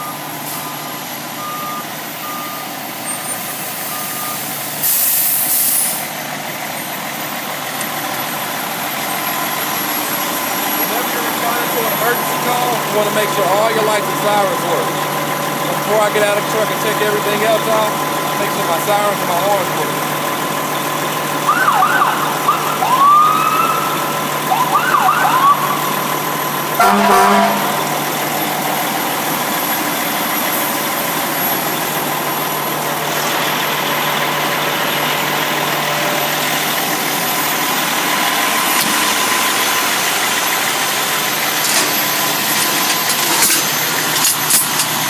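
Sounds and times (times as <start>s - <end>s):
truck engine idling: 0.0s - 45.0s
fire truck siren whoops: 21.1s - 34.6s
horn blast: 26.7s - 28.2s.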